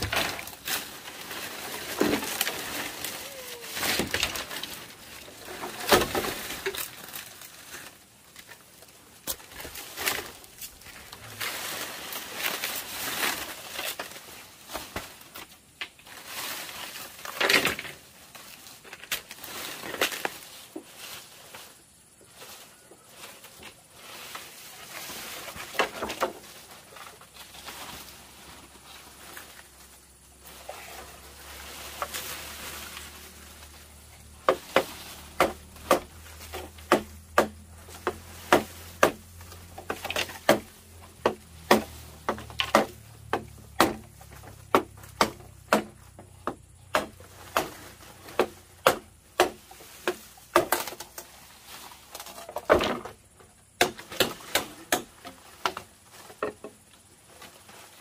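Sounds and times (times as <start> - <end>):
rustling: 0.0 - 58.0
hand tool striking bamboo: 34.2 - 51.3, 53.8 - 56.7.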